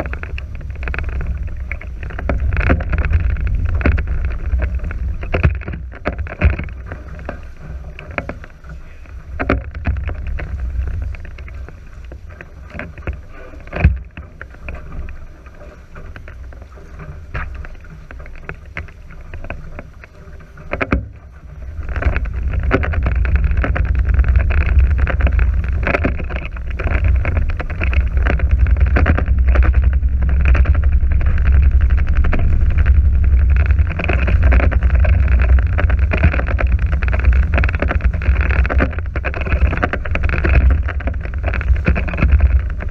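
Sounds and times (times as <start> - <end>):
wind buffeting microphone: 0.0 - 8.0, 20.9 - 42.9
water rushing along hulls: 0.0 - 42.9.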